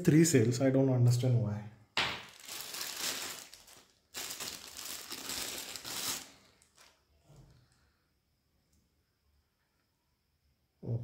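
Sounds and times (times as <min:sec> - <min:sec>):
plastic bag crinkling: 0:02.0 - 0:07.0.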